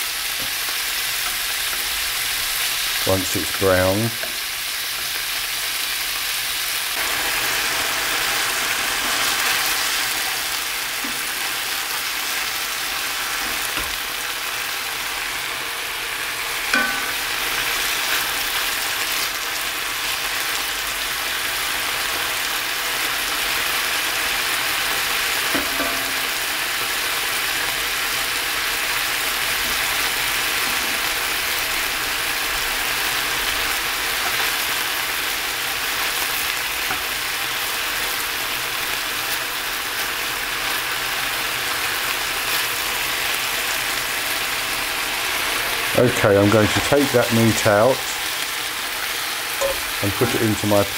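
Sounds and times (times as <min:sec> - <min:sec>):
steak sizzling in frying pan: 0:00.0 - 0:50.9
spatula knocking against pan: 0:16.7 - 0:17.1.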